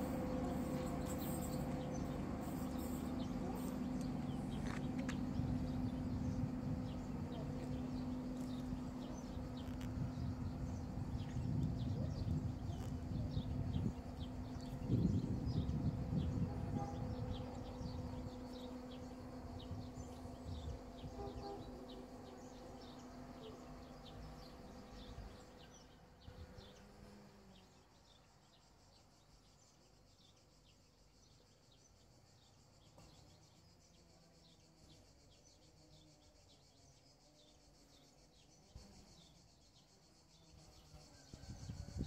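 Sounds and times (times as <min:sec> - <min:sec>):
distant engine hum: 0:00.0 - 0:27.8
insects buzzing: 0:00.0 - 0:42.0.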